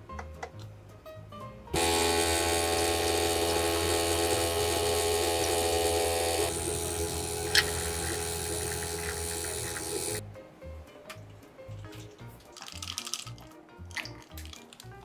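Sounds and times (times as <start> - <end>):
coffee machine pump humming: 1.8 - 10.2.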